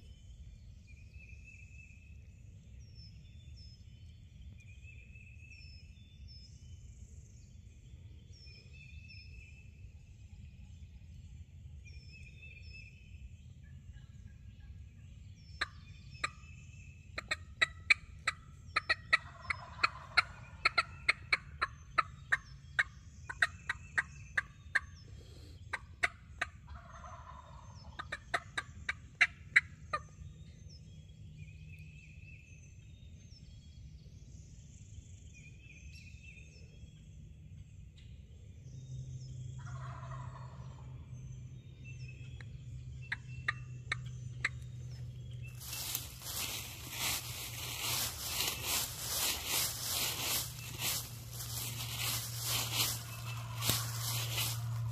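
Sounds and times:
songbird chirps: 0:00.0 - 0:54.9
turkey calling: 0:17.2 - 0:24.8, 0:45.6 - 0:54.9.

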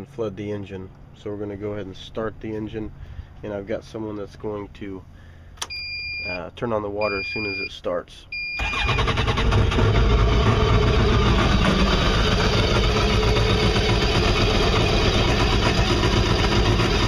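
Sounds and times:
boat engine idling: 0:08.7 - 0:17.0.

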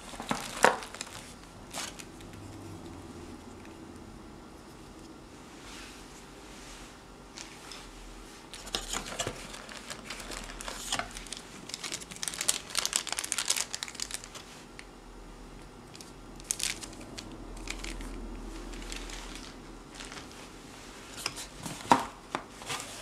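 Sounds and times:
plastic bag crinkling: 0:00.0 - 0:02.4, 0:08.5 - 0:14.8, 0:15.9 - 0:20.5.

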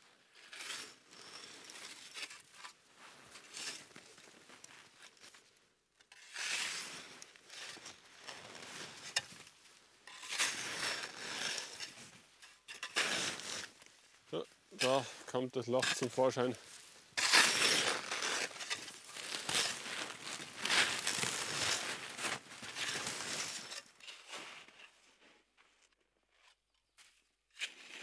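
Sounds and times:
snow scraped off tent roof: 0:06.1 - 0:09.4, 0:10.1 - 0:12.2, 0:12.8 - 0:13.8, 0:14.8 - 0:25.6.

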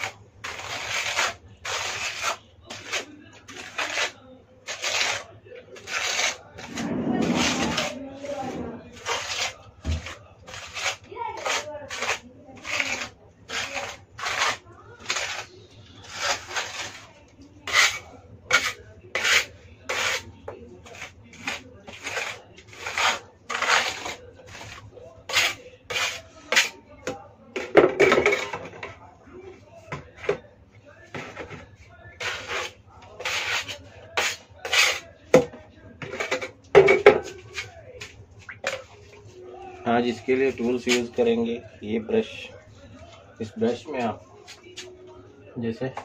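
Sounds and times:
putty knife scraping plaster: 0:00.0 - 0:28.7, 0:31.1 - 0:31.6, 0:32.2 - 0:38.9.

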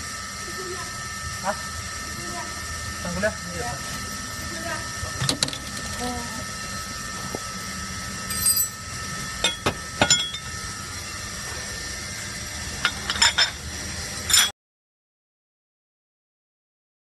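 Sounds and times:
steady hum: 0:00.0 - 0:14.5
metal parts clinking: 0:08.3 - 0:08.8, 0:14.3 - 0:14.5.

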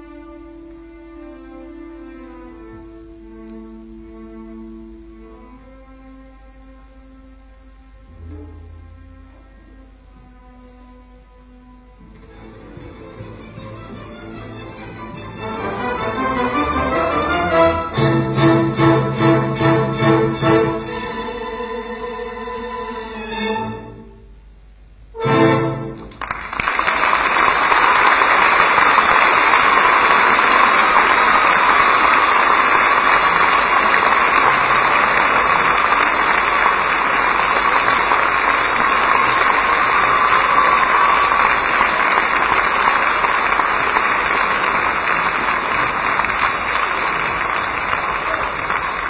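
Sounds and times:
orchestra chord: 0:00.0 - 0:24.3, 0:25.1 - 0:26.2
audience applauding: 0:25.8 - 0:49.0.

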